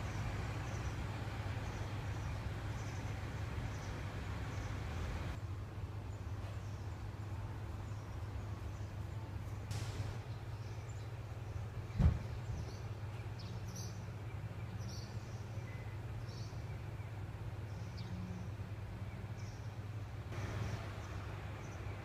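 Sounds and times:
birds chirping: 0.0 - 5.4, 7.9 - 22.0.

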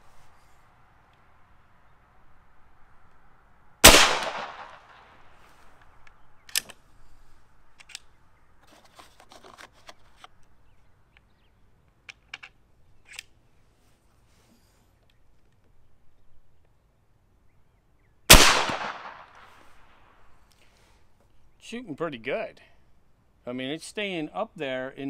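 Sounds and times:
air rifle shot: 3.8 - 5.1, 18.3 - 19.6.

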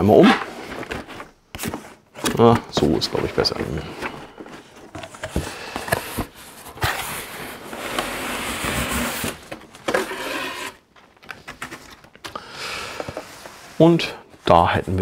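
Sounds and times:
cardboard sliding on cardboard: 5.3 - 10.8.

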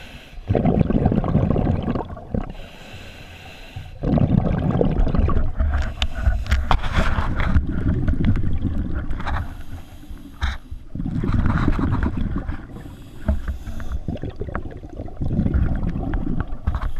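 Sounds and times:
hissing regulator inhale: 0.0 - 0.5, 2.5 - 4.0, 5.7 - 7.1, 9.3 - 10.9, 12.7 - 14.2
exhaled bubbles gurgling: 0.4 - 2.9, 3.9 - 16.9.

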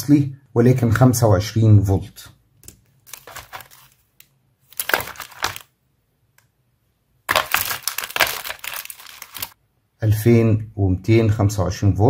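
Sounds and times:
components rattling in plastic box: 3.1 - 4.0, 4.8 - 5.6, 7.3 - 9.5.

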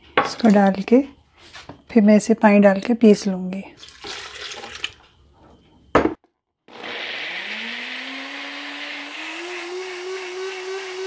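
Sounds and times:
blender motor whining: 6.7 - 11.0.

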